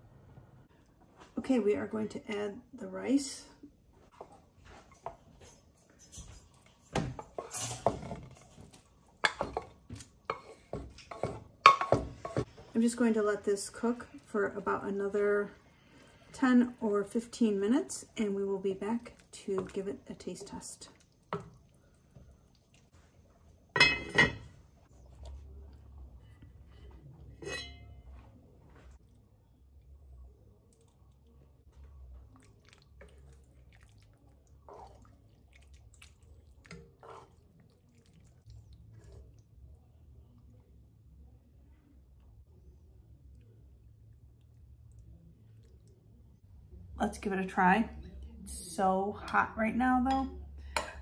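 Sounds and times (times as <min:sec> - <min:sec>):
cookware clattering and clinking: 0:04.9 - 0:12.5, 0:23.7 - 0:24.6, 0:27.3 - 0:28.1.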